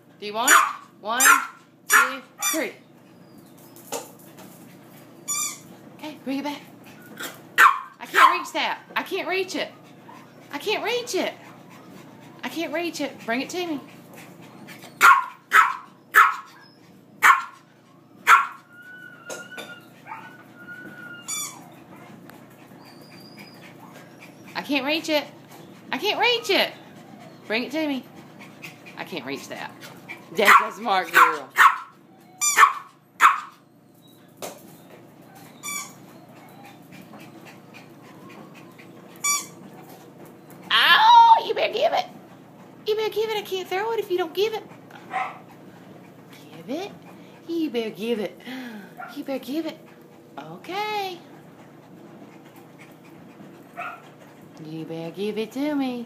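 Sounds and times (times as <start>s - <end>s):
small dog barking: 0.5s - 2.6s, 7.2s - 8.5s, 15.0s - 16.5s, 17.2s - 17.6s, 18.2s - 18.6s, 30.4s - 31.9s, 32.5s - 33.6s, 45.1s - 45.4s, 53.8s - 54.0s
dog whining: 1.3s - 3.9s, 6.9s - 8.3s, 14.6s - 22.1s, 22.7s - 24.6s, 25.6s - 28.2s, 30.3s - 39.7s.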